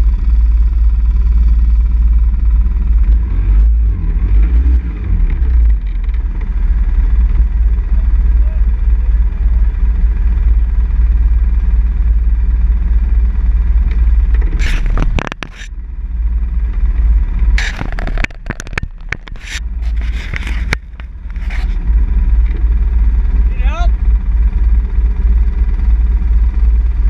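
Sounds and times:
atv engine idling: 0.0 - 3.4, 5.0 - 27.0
scraping crackling noise: 14.0 - 15.8, 17.4 - 22.7.

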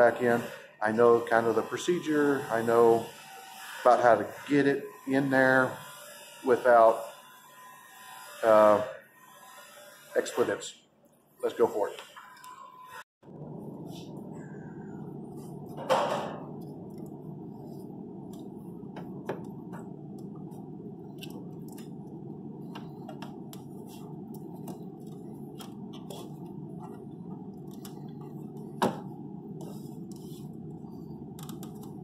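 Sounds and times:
steady low hum: 13.2 - 32.0.

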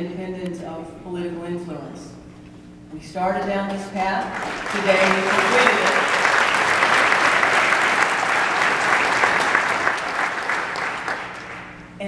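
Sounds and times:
audience applauding: 4.2 - 11.9.

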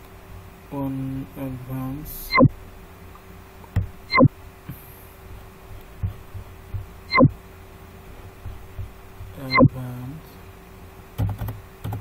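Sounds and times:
steady electrical hum: 0.0 - 12.0
sharp thumps with pitch sweep: 3.8 - 4.3, 6.0 - 7.4
soft low knocks: 6.0 - 7.3, 8.4 - 9.4.

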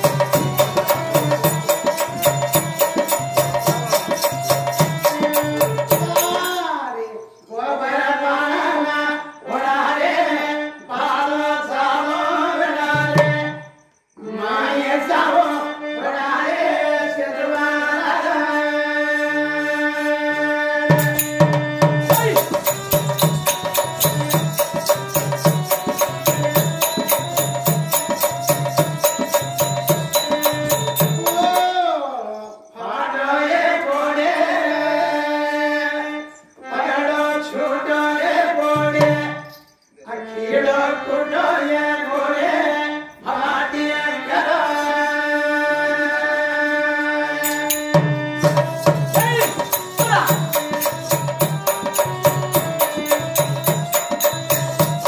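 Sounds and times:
hand drum beat: 0.0 - 6.6, 20.9 - 31.8, 47.5 - 55.0
small cymbals: 0.0 - 6.8, 20.9 - 32.6, 47.4 - 55.0
men singing: 0.0 - 55.0.

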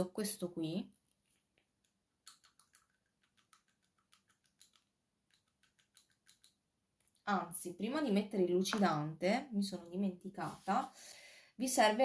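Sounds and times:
small craft items clicking on table: 2.2 - 7.2.

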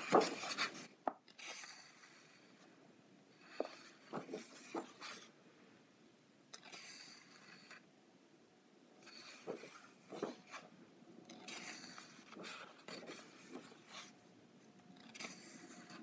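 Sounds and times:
paper pages rustling: 0.0 - 1.6, 3.6 - 5.3, 9.3 - 10.7, 11.4 - 14.1.

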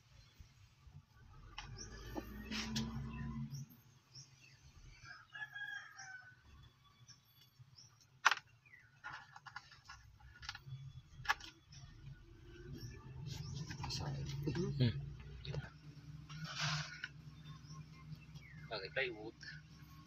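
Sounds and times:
distant rooster crowing: 5.0 - 6.7
metal part scraping on sandpaper: 16.3 - 17.2.

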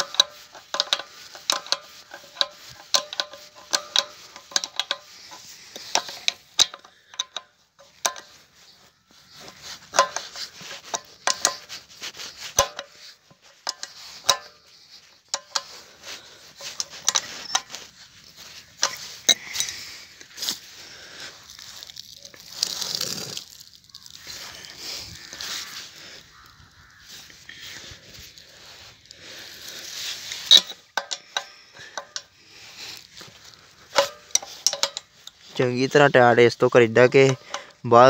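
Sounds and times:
spanner clinking on metal nuts: 0.0 - 8.7, 9.4 - 19.9, 29.7 - 32.4, 33.2 - 37.8.

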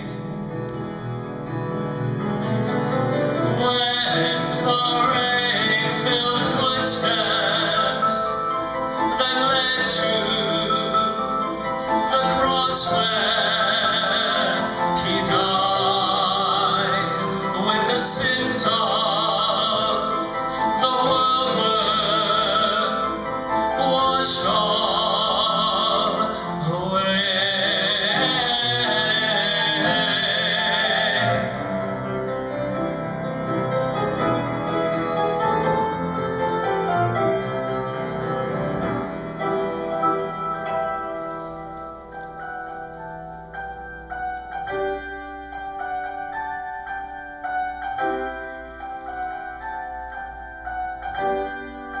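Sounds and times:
person singing with vibrato: 0.0 - 0.6, 3.3 - 32.2
piano accompaniment: 0.0 - 52.0.

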